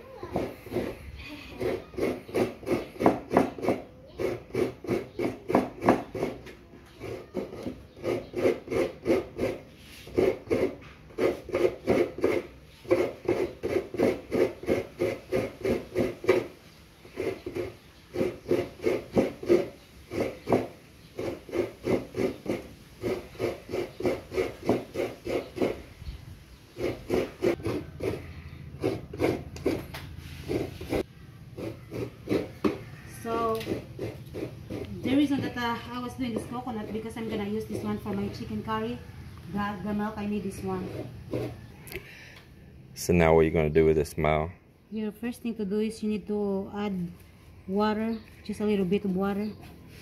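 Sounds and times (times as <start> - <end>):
coconut rasping on grater blade: 0.0 - 26.0, 26.7 - 38.7, 40.2 - 41.8.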